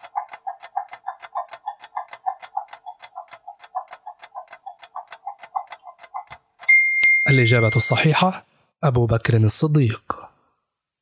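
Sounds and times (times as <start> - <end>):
fast clock ticking: 0.0 - 6.7.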